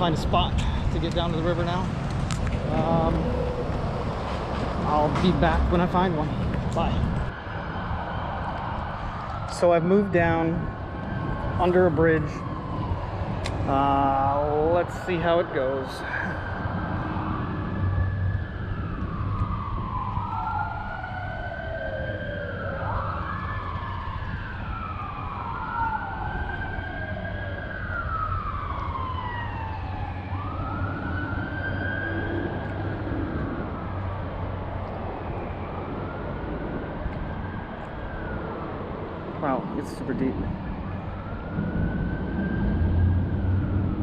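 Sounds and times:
steady low rumble: 0:00.0 - 0:09.3, 0:28.0 - 0:44.0
emergency siren wailing: 0:00.0 - 0:44.0.

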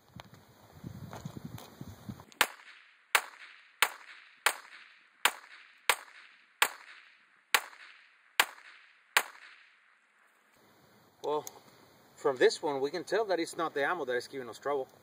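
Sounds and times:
pistol shots with echo: 0:02.4 - 0:09.8.

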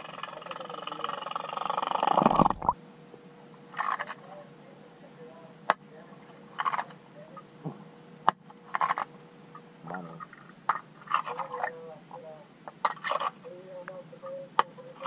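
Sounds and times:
underwater blade chatter: 0:00.0 - 0:02.8, 0:03.7 - 0:07.6
faint steady hum: 0:00.0 - 0:15.0.

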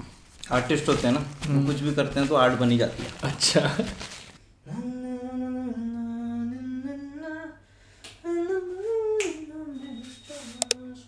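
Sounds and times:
person humming slow melody: 0:04.7 - 0:07.6
finger snap: 0:08.0 - 0:08.3, 0:09.2 - 0:09.4, 0:10.6 - 0:10.8.

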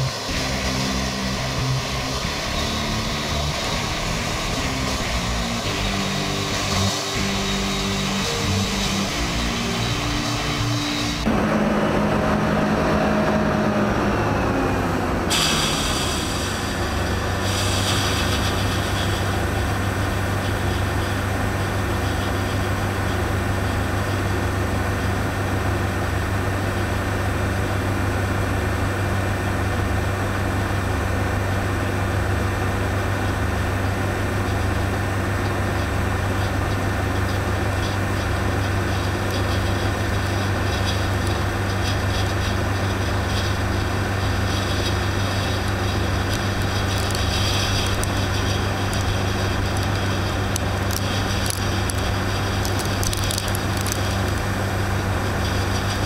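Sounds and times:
diesel machinery drone: 0:00.0 - 0:56.0
grain pouring into metal trailer: 0:17.4 - 0:22.7, 0:37.6 - 0:56.0.

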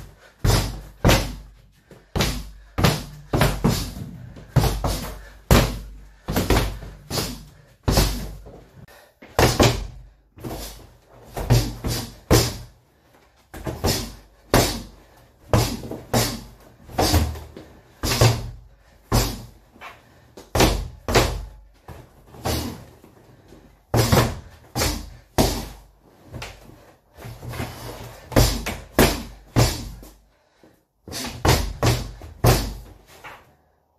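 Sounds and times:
punches thudding on heavy bag: 0:00.3 - 0:01.5, 0:02.1 - 0:08.5, 0:09.3 - 0:12.7, 0:13.5 - 0:19.6, 0:20.5 - 0:22.9, 0:23.9 - 0:25.8, 0:27.7 - 0:30.1, 0:31.1 - 0:33.0.

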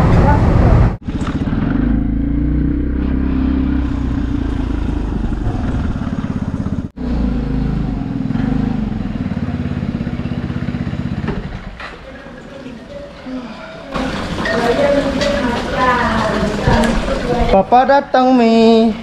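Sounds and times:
scooter engine rumbling: 0:00.0 - 0:17.7.

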